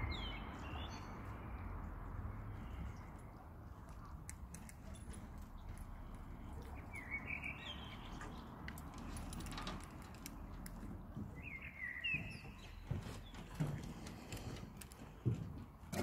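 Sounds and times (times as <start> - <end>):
footsteps on pontoon: 10.4 - 16.0.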